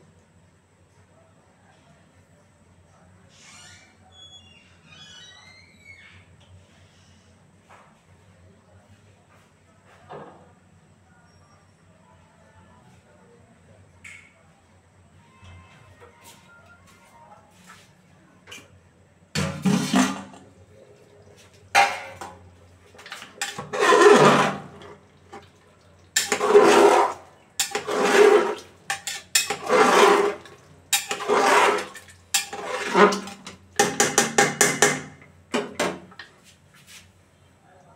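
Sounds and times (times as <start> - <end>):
metal spatula scraping a pot: 19.4 - 20.5, 21.8 - 36.2.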